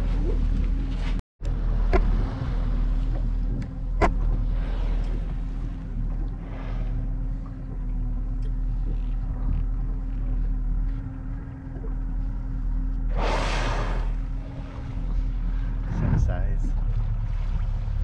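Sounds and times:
whale blowing: 0:04.0 - 0:08.2, 0:12.9 - 0:16.2.

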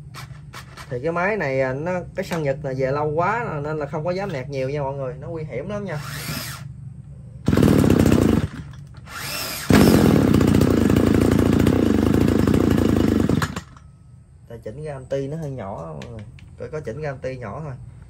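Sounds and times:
brush cutter engine idling and revving: 0:07.4 - 0:13.8.

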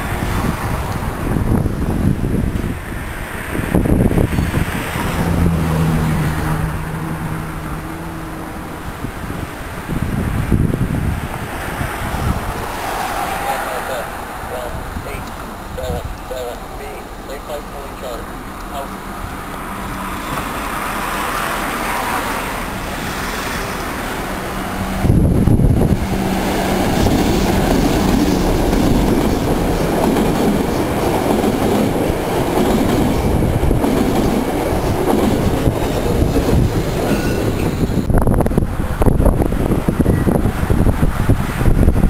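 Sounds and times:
train wheels clattering over rails: 0:25.8 - 0:38.1.

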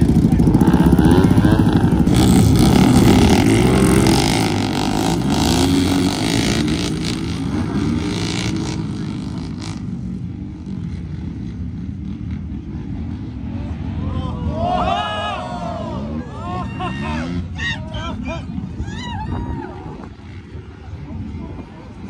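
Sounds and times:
lawn mower engines revving: 0:00.0 - 0:14.8.

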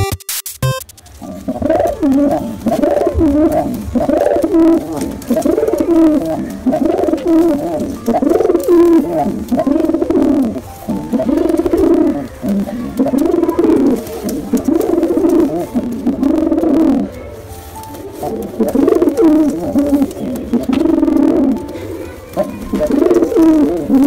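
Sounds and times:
pigeon cooing: 0:01.1 - 0:24.0.

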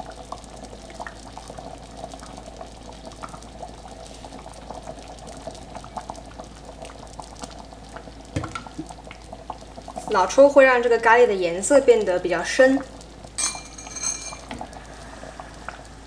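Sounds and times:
curry bubbles popping: 0:00.0 - 0:10.5.

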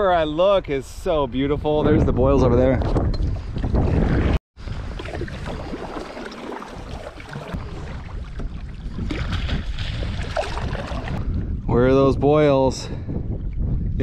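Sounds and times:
wind on microphone: 0:00.5 - 0:14.0
water lapping against kayak hull: 0:03.4 - 0:11.5.

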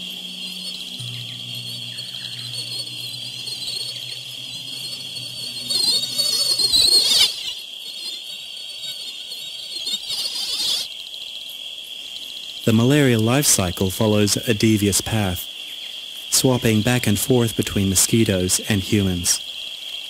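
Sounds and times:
low steady hum: 0:00.0 - 0:07.6
crickets chirring: 0:00.0 - 0:20.0
wavering high insect buzz: 0:00.0 - 0:20.0.

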